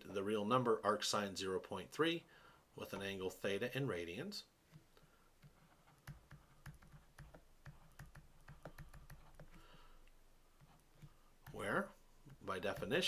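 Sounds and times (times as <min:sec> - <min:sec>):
stylus tapping on tablet: 0:04.7 - 0:09.8.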